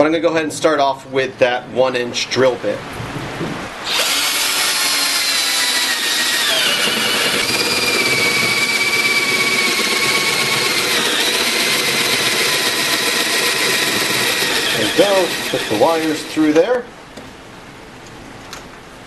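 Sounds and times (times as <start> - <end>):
power drill boring into wood: 3.8 - 16.6.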